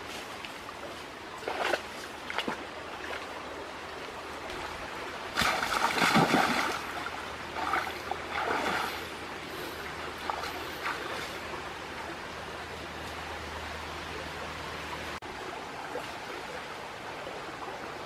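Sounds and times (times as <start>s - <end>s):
river flowing: 0.0s - 18.0s
water splashing: 1.3s - 3.4s, 4.5s - 11.6s.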